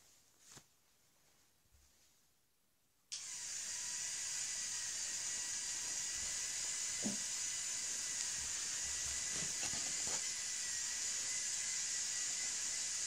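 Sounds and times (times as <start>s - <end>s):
electric motor whining: 3.2s - 13.0s.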